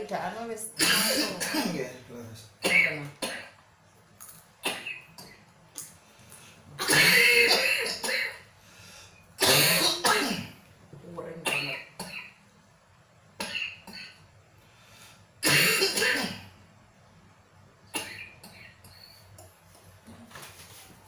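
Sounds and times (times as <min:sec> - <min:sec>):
man coughing: 0:00.8 - 0:01.9, 0:06.8 - 0:08.4, 0:09.4 - 0:10.5, 0:15.4 - 0:16.4.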